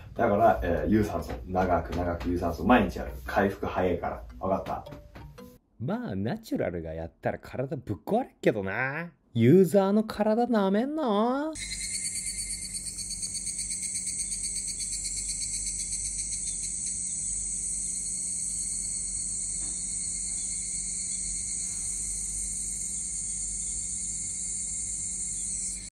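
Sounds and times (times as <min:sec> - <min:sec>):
insects trilling: 0:11.6 - 0:25.9.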